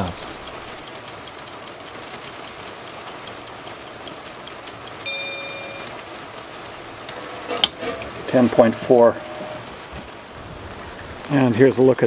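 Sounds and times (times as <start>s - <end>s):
rapid even ticking: 0.0s - 5.9s
short ringing tone: 5.0s - 6.0s.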